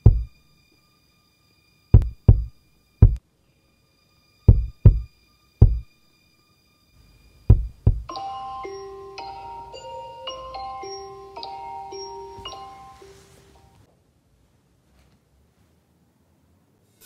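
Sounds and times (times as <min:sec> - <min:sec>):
deep bass thumps: 0:00.0 - 0:00.4, 0:02.0 - 0:03.2, 0:04.5 - 0:05.9, 0:07.5 - 0:08.1
faint steady high tone: 0:00.0 - 0:13.9
smartphone alarm melody: 0:07.5 - 0:13.4.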